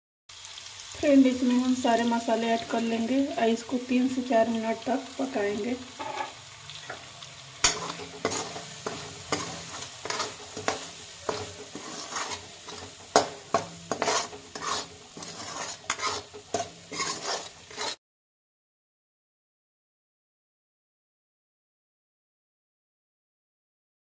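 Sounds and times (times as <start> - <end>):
oil sizzling: 0.3 - 18.0
metal spatula scraping a pan: 5.2 - 18.0.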